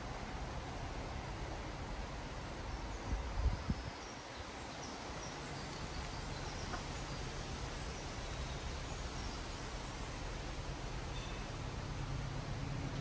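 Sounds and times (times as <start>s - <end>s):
faint bird chirps: 11.1s - 11.6s.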